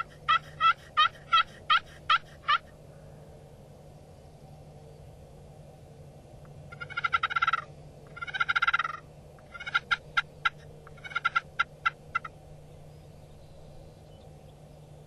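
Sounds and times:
turkey gobbling: 0.0 - 2.7, 6.7 - 12.3.

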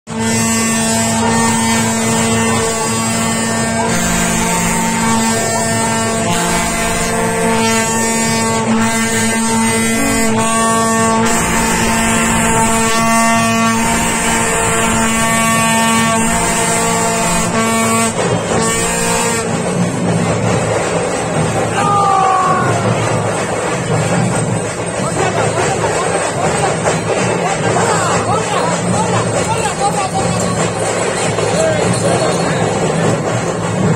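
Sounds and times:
wind instrument long notes: 0.1 - 19.8
steady drone: 0.1 - 26.5
drums beating: 0.1 - 33.9.

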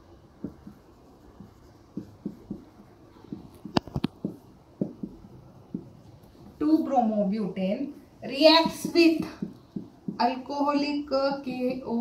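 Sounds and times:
marker pen on whiteboard: 0.0 - 12.0.

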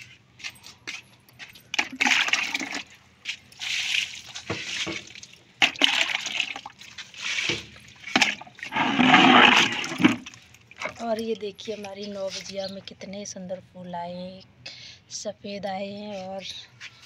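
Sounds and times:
water poured from bucket: 1.8 - 2.9, 3.6 - 11.0.

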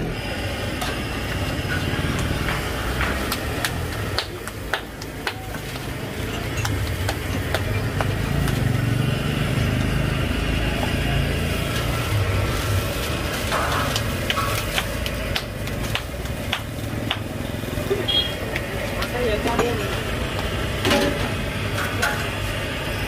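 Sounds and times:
motor traffic rumble: 0.0 - 23.0.

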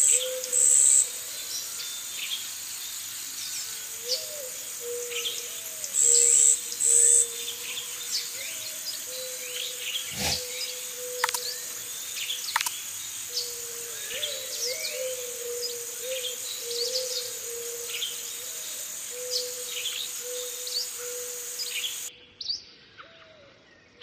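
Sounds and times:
high-pitched hiss: 0.0 - 22.1
birds chirping: 4.1 - 22.1.

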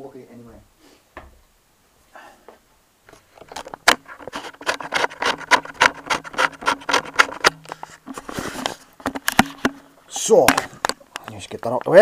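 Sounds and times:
camera handling knocks and rustles: 3.1 - 11.3.

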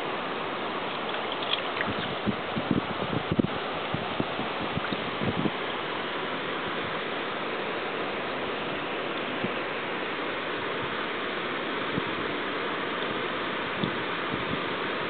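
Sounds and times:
running water in a stream: 0.0 - 15.0.

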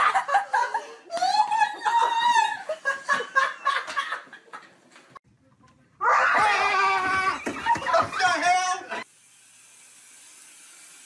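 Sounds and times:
loud scream: 6.0 - 7.5.

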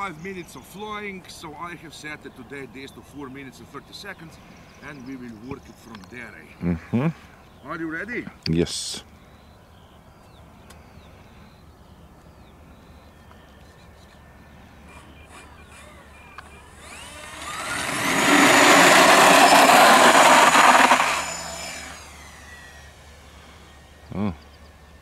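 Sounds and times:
model plane electric motors whining: 14.4 - 25.0.

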